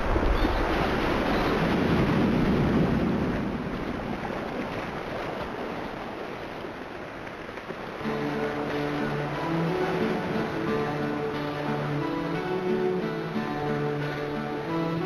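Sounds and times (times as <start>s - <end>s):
rushing noise with low rumble: 0.0s - 11.4s
music with held notes: 8.0s - 15.0s.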